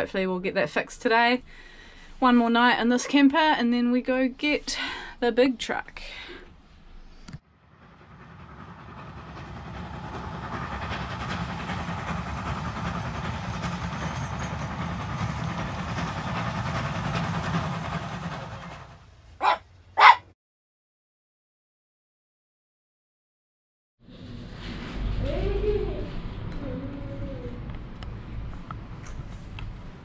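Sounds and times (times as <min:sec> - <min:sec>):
steam train rumbling past: 0:07.4 - 0:19.6
small dog barking: 0:19.4 - 0:20.3.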